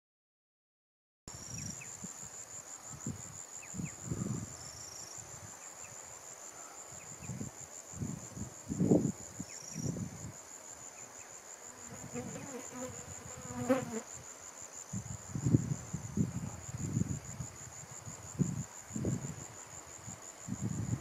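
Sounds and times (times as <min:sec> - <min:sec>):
insect trill: 0:01.3 - 0:21.0
wind buffeting microphone: 0:02.9 - 0:04.7, 0:07.0 - 0:10.4, 0:14.9 - 0:21.0.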